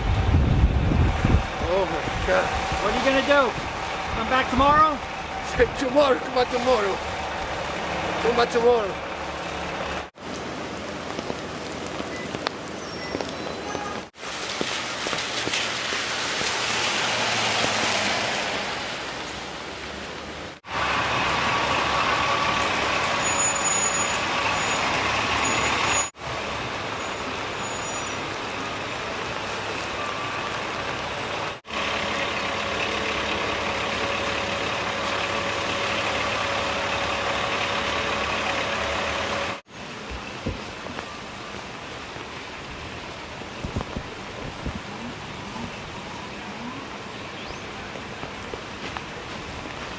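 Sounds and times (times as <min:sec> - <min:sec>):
vehicle engines running: 0:00.0 - 0:14.2, 0:14.8 - 0:49.9
heavy rain and wet road noise: 0:00.0 - 0:49.9.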